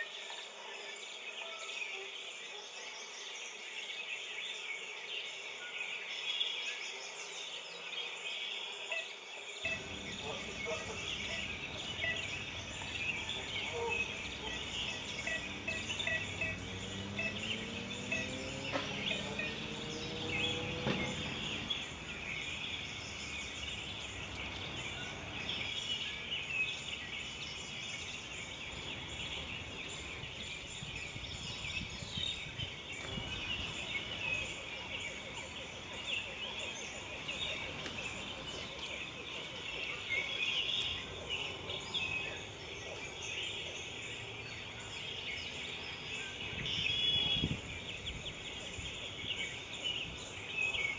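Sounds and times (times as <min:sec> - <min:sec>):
dense high chirping chorus: 0:09.6 - 0:50.9
motor rising in pitch: 0:09.7 - 0:25.7.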